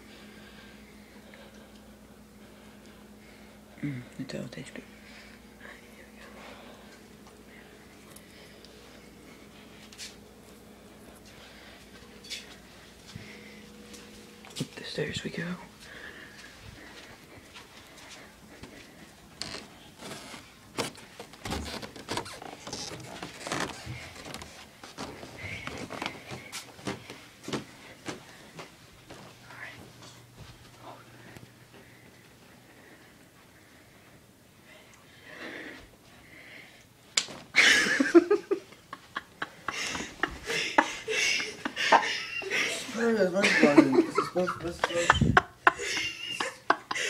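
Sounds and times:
footsteps on stairs: 0:20.8 - 0:30.8.

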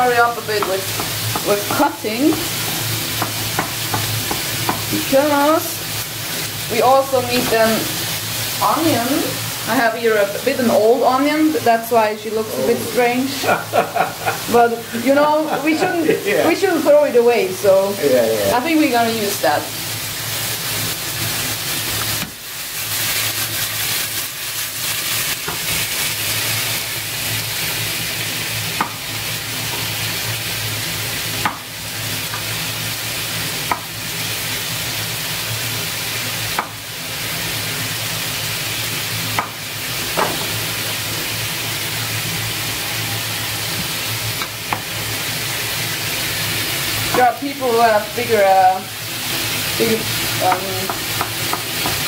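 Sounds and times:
chicken sizzling in a pan: 0:00.0 - 0:52.0
knife knocking on cutting board: 0:40.2 - 0:40.5.

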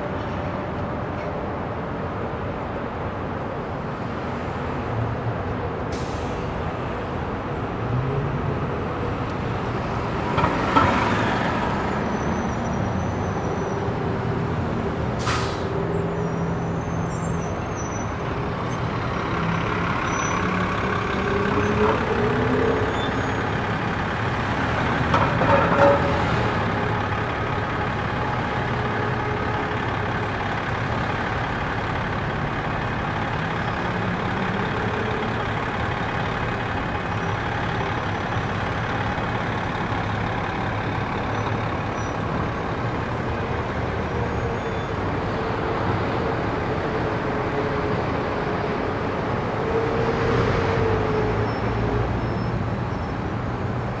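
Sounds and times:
traffic engines idling and pulling away: 0:00.0 - 0:54.0
vehicles passing: 0:00.0 - 0:54.0
short sharp hisses: 0:15.2 - 0:15.7.

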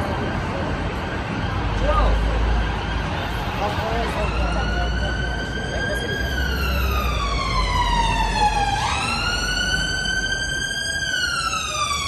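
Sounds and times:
emergency siren wailing: 0:00.0 - 0:12.0
road traffic rumble: 0:00.0 - 0:12.0.

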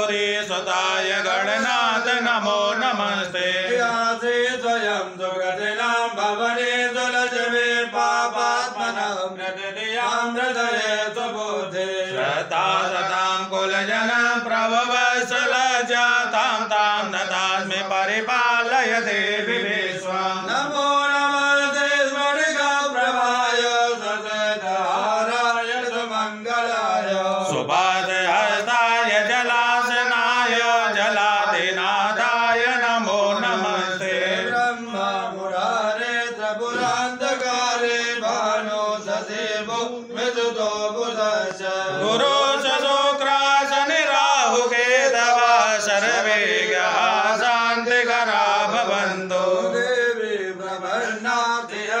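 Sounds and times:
priests chanting: 0:00.0 - 0:52.0.

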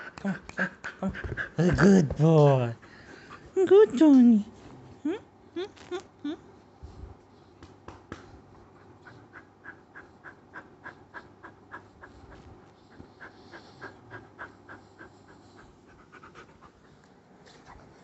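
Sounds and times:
dog panting: 0:00.0 - 0:04.0, 0:08.4 - 0:18.0.

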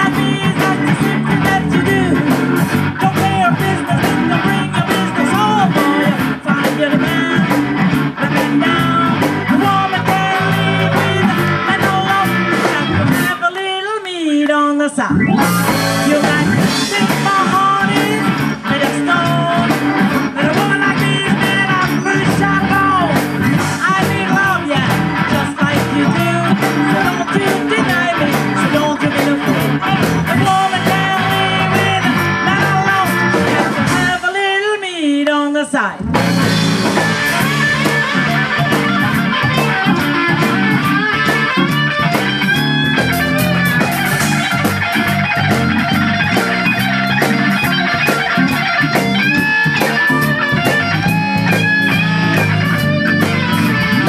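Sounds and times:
woman singing: 0:00.0 - 0:07.6, 0:23.8 - 0:36.0
wavering bending guitar line: 0:00.0 - 0:13.5, 0:15.1 - 0:34.2, 0:36.0 - 0:54.0
blues band playing: 0:00.0 - 0:54.0.

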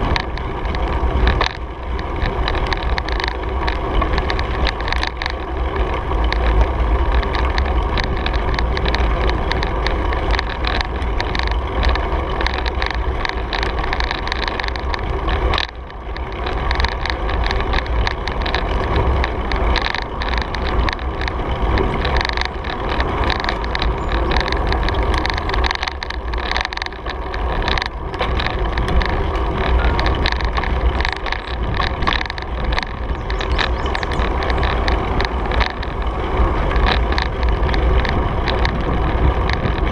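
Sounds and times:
bike rattling: 0:00.0 - 0:39.9
tyres on asphalt: 0:00.0 - 0:39.9
wind rumble on microphone: 0:00.0 - 0:39.9.

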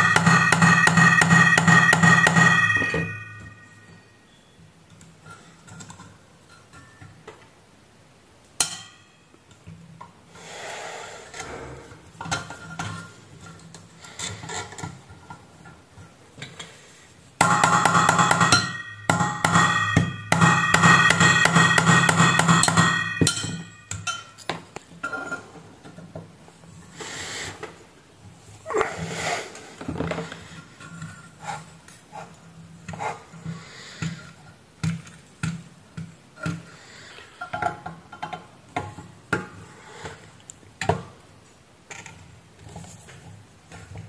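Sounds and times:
metal scraping: 0:00.0 - 0:04.2.

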